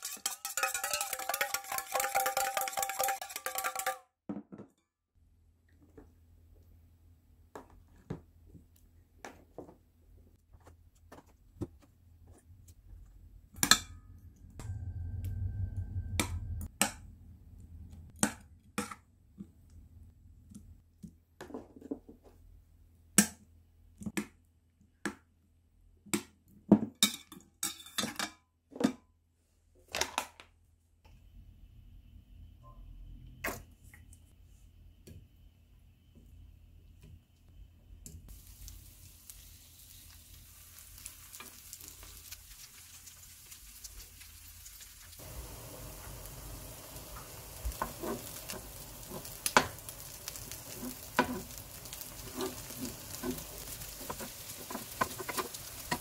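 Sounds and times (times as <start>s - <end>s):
chopsticks tapping a metal bowl: 0.0s - 4.0s
low hum: 13.9s - 18.1s.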